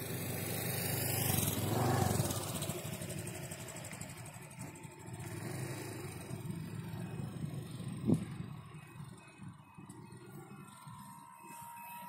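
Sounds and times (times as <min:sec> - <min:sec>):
wind rumbling on microphone: 0:07.3 - 0:11.1.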